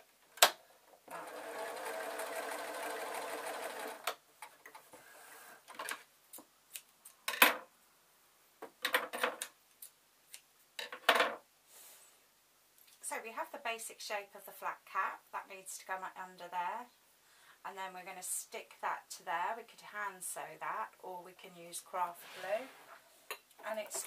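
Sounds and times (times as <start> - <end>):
electric sewing machine running: 1.1 - 4.1.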